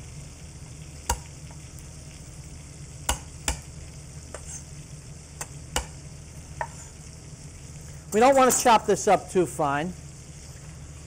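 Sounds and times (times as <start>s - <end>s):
chicken sizzling in a pan: 0.0s - 11.0s.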